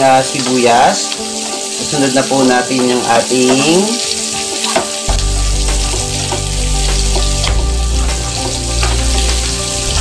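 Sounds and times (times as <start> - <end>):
onions sizzling in hot oil: 0.0 - 10.0
background music with bass line: 4.9 - 10.0.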